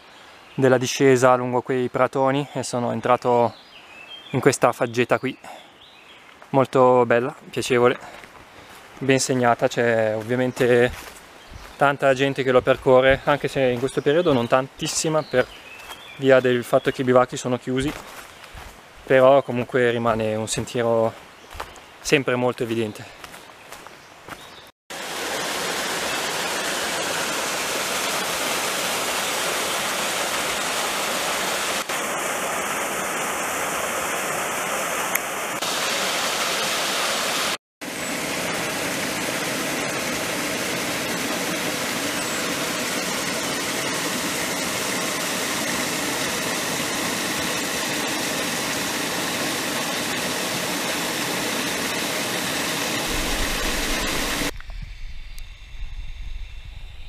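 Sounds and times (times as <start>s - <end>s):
mountain stream rushing: 24.9s - 54.5s.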